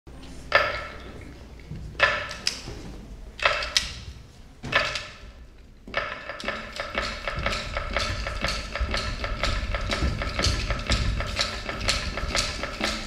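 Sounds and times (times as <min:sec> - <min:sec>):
slow struck drum beats: 0:05.9 - 0:13.0.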